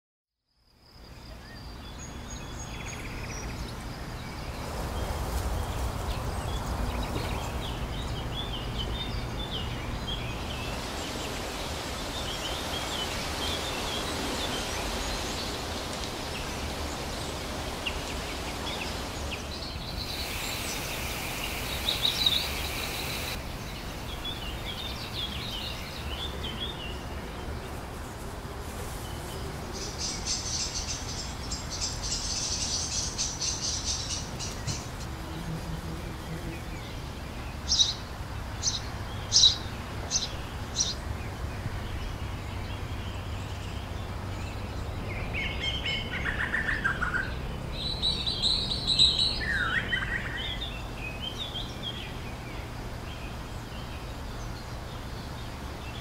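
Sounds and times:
low background noise: 0.4s - 56.0s
birds chirping and singing: 17.9s - 27.0s.

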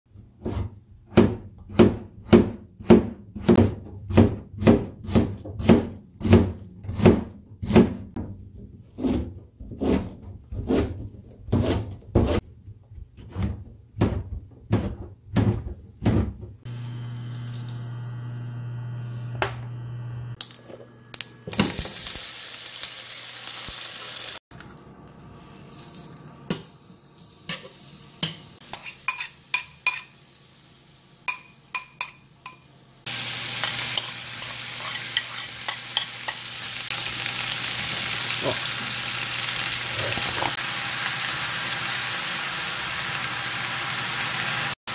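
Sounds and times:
knife chopping on plastic board: 0.4s - 8.2s
garlic sizzling in oil: 16.7s - 19.0s, 21.4s - 24.4s, 33.1s - 44.9s
spoon clinking: 28.7s - 30.1s, 31.3s - 32.7s.

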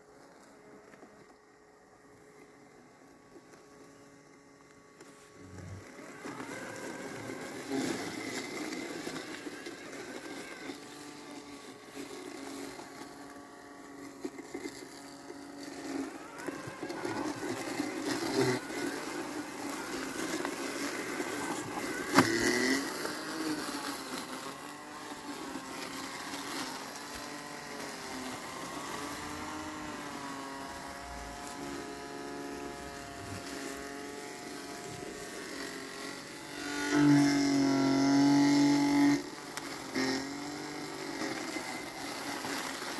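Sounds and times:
robotic lawn mower motor hum: 0.0s - 42.9s.

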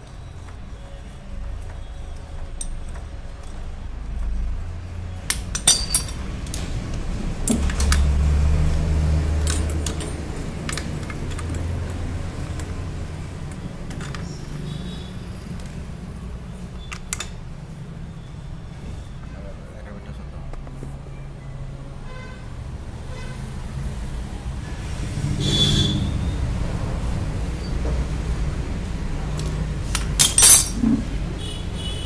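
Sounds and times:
steel tools clinking and scraping: 1.8s - 3.7s, 5.2s - 6.6s, 9.4s - 14.7s, 29.3s - 31.2s.

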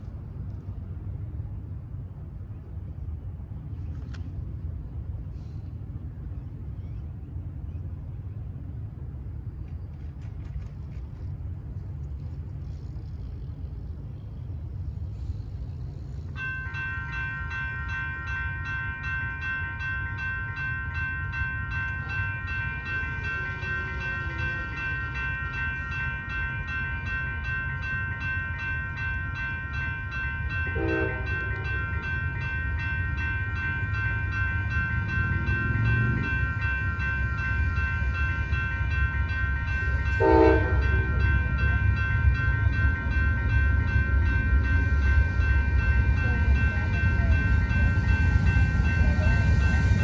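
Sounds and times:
crossing warning bell ringing: 11.2s - 50.0s.

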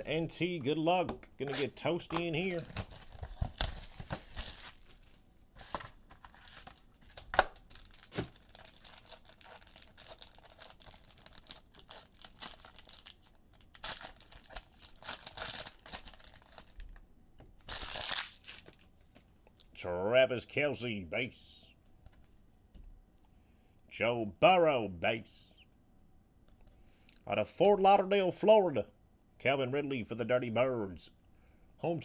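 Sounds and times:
plastic wrapping tearing and crinkling: 2.4s - 16.9s, 17.6s - 18.9s.

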